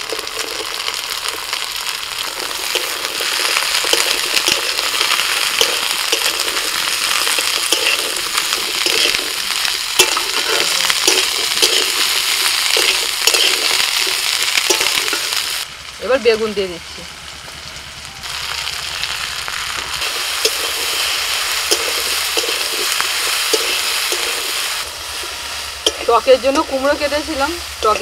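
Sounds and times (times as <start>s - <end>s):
vegetables sizzling in oil: 0.0s - 28.0s
metal spatula scraping pan: 2.7s - 15.4s, 25.2s - 28.0s
spatula clink: 21.7s - 22.9s.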